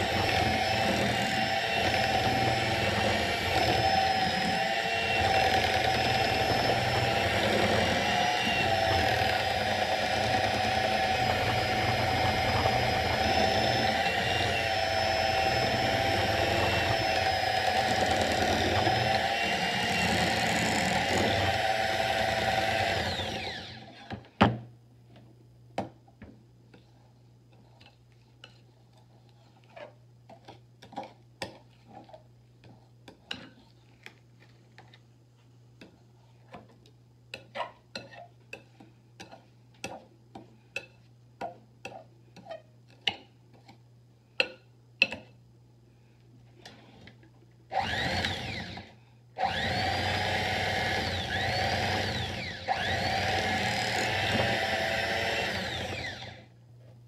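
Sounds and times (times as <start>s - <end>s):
electric hand mixer whining: 0.0s - 24.1s, 47.7s - 56.5s.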